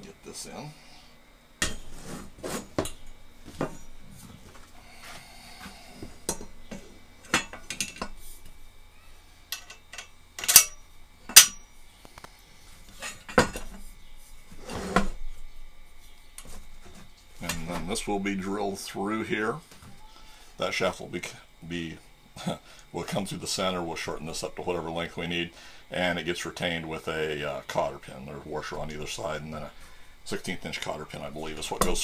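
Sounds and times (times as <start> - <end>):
metal clinks and knocks: 6.2 - 8.2, 9.5 - 11.8
sharp metal clanks: 9.5 - 11.8.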